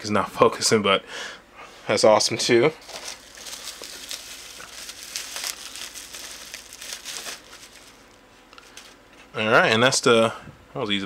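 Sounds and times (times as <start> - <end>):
bubble wrap crinkling: 2.8 - 9.0.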